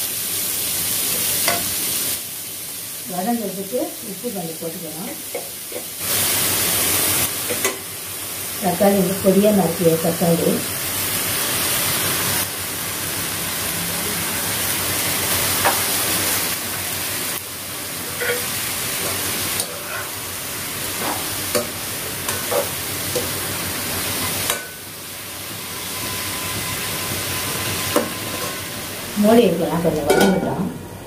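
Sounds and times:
onions and tomatoes sizzling in oil: 0:00.0 - 0:31.0
metal spoon scraping a pan: 0:18.0 - 0:20.2, 0:21.0 - 0:23.4.

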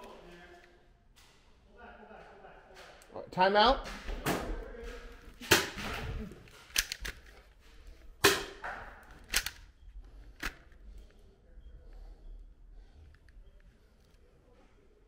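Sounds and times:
sharp clacks and snaps: 0:06.5 - 0:07.5, 0:08.2 - 0:11.2.

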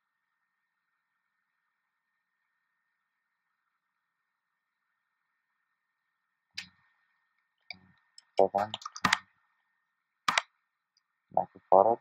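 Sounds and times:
computer keyboard clicks: 0:08.2 - 0:09.2, 0:10.3 - 0:10.5
mouse clicks: 0:08.2 - 0:09.3, 0:10.3 - 0:10.5.

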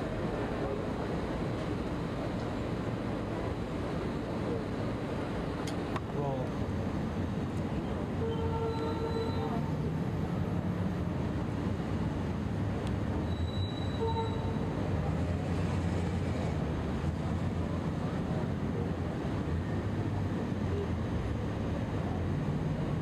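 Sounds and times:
street traffic rumble: 0:00.0 - 0:23.0
faint squeal: 0:08.2 - 0:09.6, 0:13.2 - 0:14.6.

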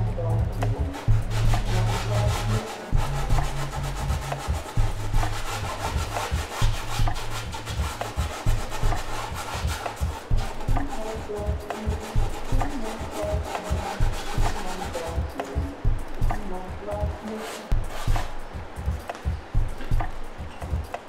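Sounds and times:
dry rubbing sound: 0:00.0 - 0:21.0
music with deep bass and beat: 0:00.0 - 0:21.0.

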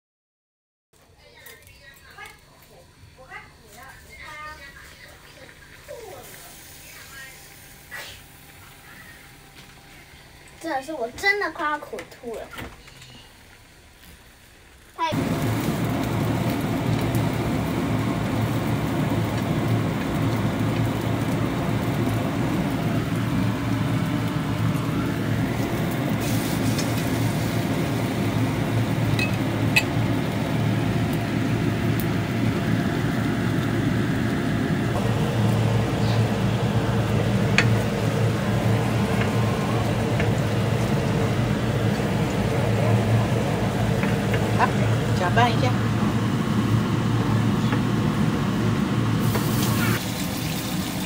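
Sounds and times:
range hood fan running: 0:01.0 - 0:51.0.

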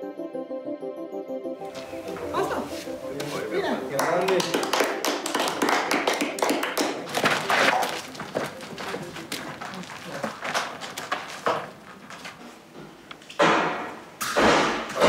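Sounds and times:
irregular knocks and thuds: 0:07.2 - 0:15.0.

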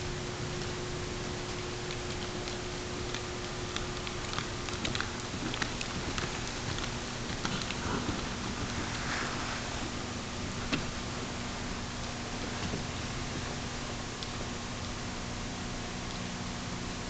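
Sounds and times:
faint low hum: 0:00.0 - 0:17.0
steady hiss: 0:00.0 - 0:17.0
horse hoofbeats cantering: 0:02.0 - 0:08.8.

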